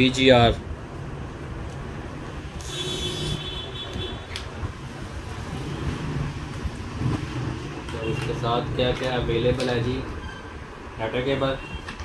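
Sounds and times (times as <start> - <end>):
street traffic rumble: 0.0 - 12.0
motorbike passing: 4.8 - 9.4.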